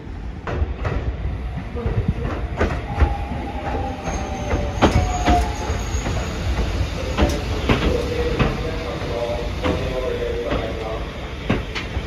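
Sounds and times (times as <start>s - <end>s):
train rumbling: 0.0s - 12.0s
wheels clicking on rails: 0.4s - 12.0s
wheels squealing: 3.0s - 7.1s.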